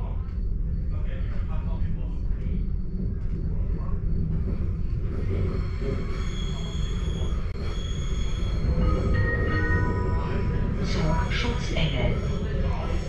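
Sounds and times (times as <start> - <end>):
train running: 0.0 - 13.0.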